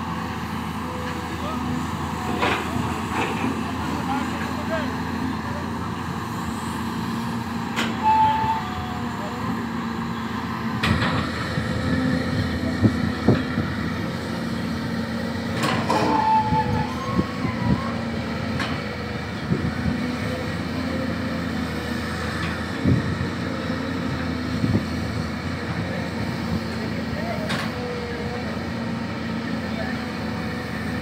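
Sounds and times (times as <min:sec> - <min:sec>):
excavator diesel engine running: 0:00.0 - 0:31.0.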